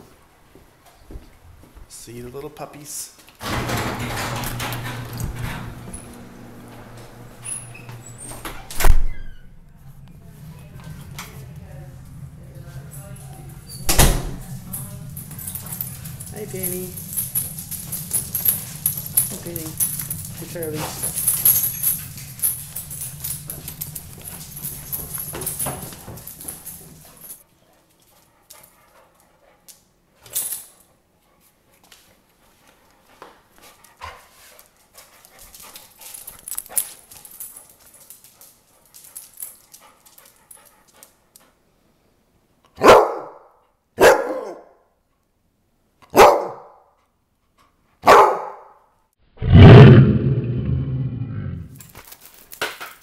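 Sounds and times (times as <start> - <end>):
dog barking: 42.8 - 44.8, 46.1 - 46.9, 48.0 - 48.8.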